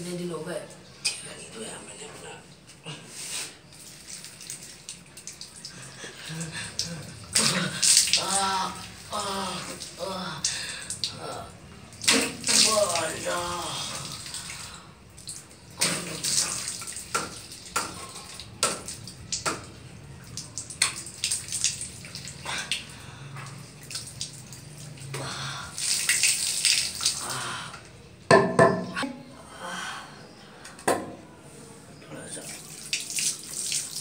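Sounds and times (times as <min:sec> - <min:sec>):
water splashing on face: 0:03.3 - 0:29.0, 0:32.4 - 0:34.0
tap water running: 0:03.6 - 0:29.0, 0:32.3 - 0:34.0.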